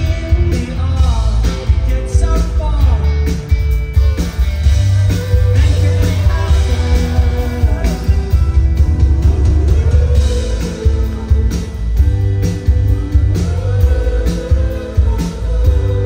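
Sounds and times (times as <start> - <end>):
live rock band playing: 0.0 - 16.0
loud bass: 0.0 - 16.0
person singing: 4.9 - 16.0.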